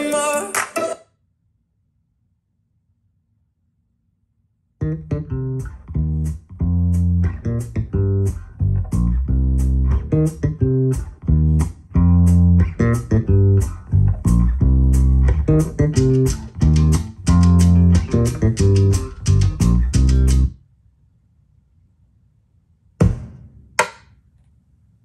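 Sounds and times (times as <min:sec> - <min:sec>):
plucked guitar notes: 0:04.8 - 0:20.5
deep bass line: 0:04.8 - 0:20.6.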